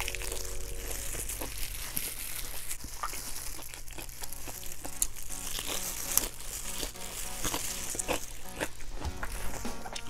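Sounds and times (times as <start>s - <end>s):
soft background music: 0.0s - 1.5s, 4.3s - 10.0s
chewing crispy fried food: 0.0s - 10.0s.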